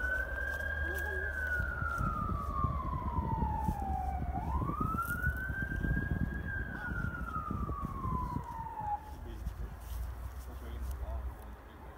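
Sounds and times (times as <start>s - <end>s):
siren wailing: 0.0s - 9.5s.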